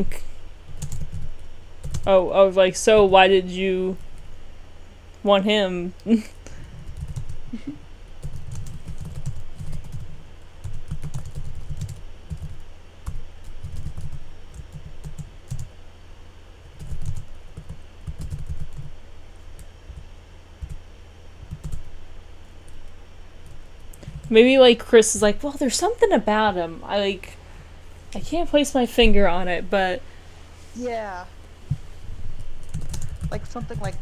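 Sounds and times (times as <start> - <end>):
typing on a keyboard: 0.7 - 2.1, 6.9 - 7.4, 8.2 - 15.7, 16.8 - 18.9, 21.5 - 21.8, 32.6 - 34.0.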